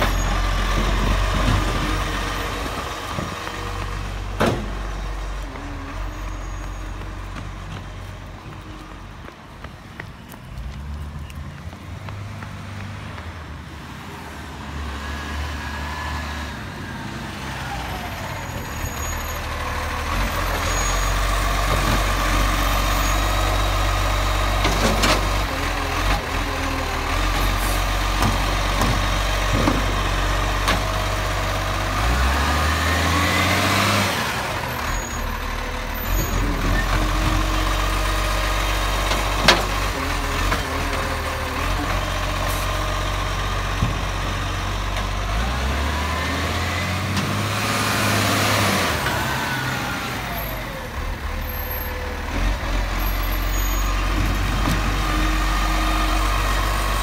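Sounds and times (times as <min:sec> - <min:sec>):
garbage truck diesel engine: 0:00.0 - 0:10.6, 0:11.2 - 0:57.0.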